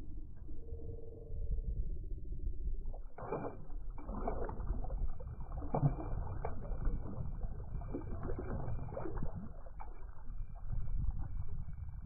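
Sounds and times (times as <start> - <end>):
wind rumble on microphone: 0.0 - 12.0
small splashes: 2.9 - 12.0
water lapping: 3.0 - 12.0.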